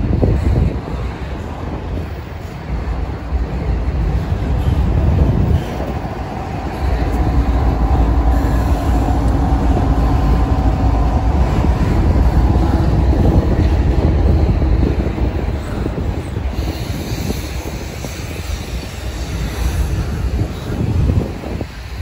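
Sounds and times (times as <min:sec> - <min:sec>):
freight train rumbling past: 0:00.0 - 0:22.0.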